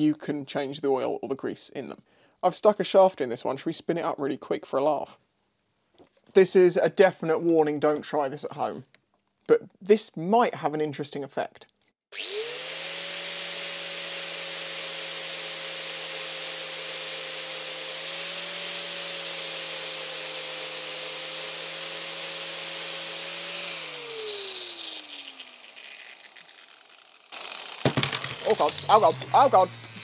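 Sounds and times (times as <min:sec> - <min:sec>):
bearing spinning with high whir: 0:21.6 - 0:30.0.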